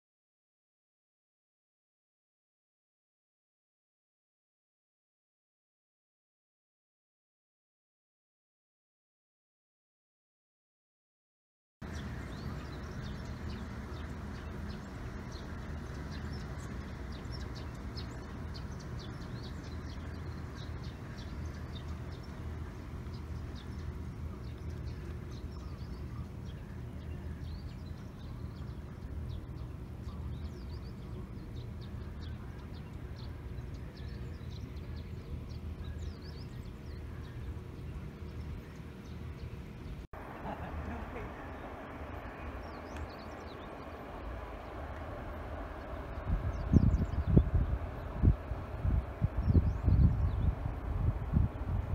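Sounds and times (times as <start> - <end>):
small birds chirping: 11.8 - 51.9
steady low rumble: 11.8 - 51.9.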